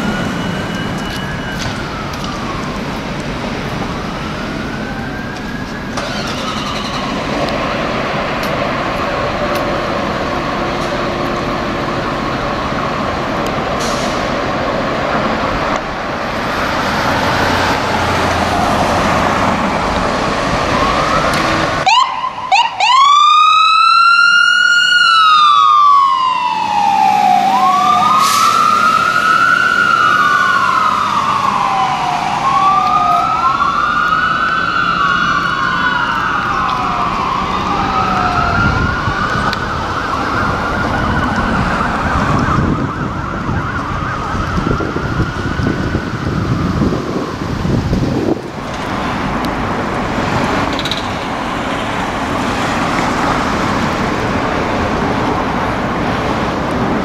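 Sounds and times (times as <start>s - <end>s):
loud electronic siren wailing: 0.0s - 7.4s, 16.0s - 48.4s
faint distant siren wailing: 0.0s - 13.4s, 15.9s - 48.5s
fire engine running: 0.0s - 57.0s.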